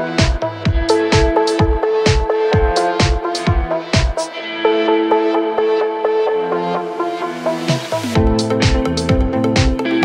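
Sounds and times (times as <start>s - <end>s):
kick-drum beat: 0.0s - 4.3s, 7.7s - 10.0s
electronic music: 0.0s - 10.0s
held synth notes: 0.0s - 10.0s
high percussion hits: 0.2s - 4.3s.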